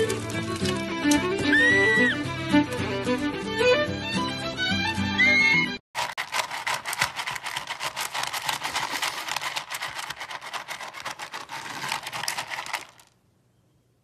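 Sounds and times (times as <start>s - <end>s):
dog crunching dry kibble: 0.0s - 1.0s, 6.0s - 13.2s
kibble clattering in metal bowl: 0.0s - 1.0s, 6.0s - 13.1s.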